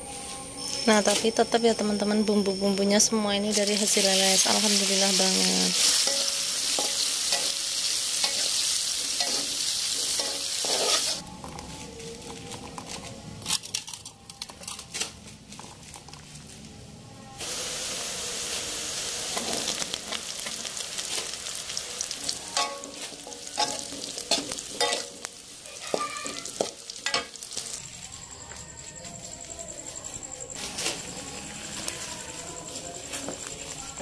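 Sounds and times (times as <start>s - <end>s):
vegetables sizzling in hot oil: 3.5s - 11.2s, 17.4s - 27.8s
metal spatula scraping and tapping: 9.2s - 11.2s.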